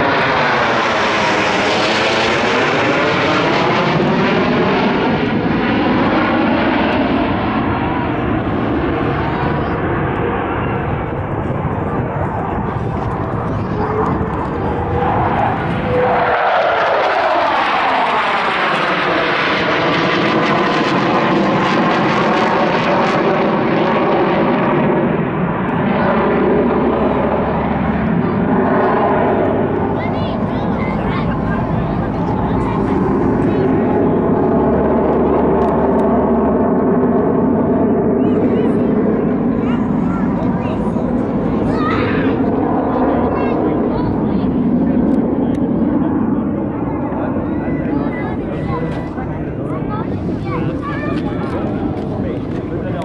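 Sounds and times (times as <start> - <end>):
jet engines roaring overhead: 0.0 - 53.0.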